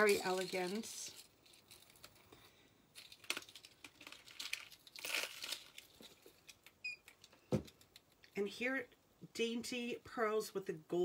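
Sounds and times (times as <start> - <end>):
jewelry rustling and clicking: 0.0 - 8.4.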